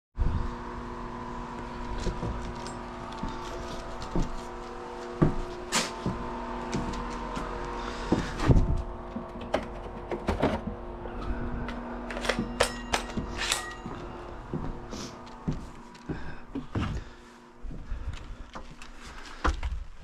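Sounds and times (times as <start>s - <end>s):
electric drill motor hum: 0.2s - 9.4s.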